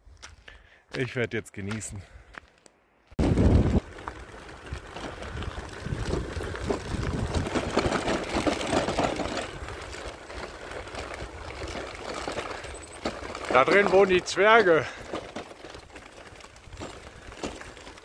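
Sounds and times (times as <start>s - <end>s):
wind rushing over microphone: 3.2s - 8.4s
e-bike rolling noise: 3.2s - 18.0s.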